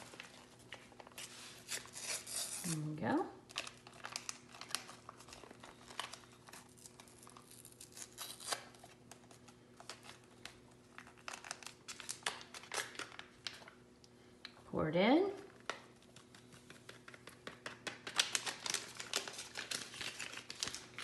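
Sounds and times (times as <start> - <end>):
paper packet crinkling and tearing: 0.0 - 13.8, 15.4 - 21.0.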